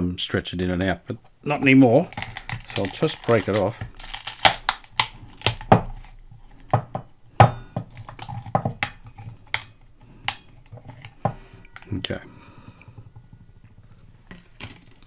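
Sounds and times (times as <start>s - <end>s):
hard rubber cracking and snapping: 1.1s - 12.0s.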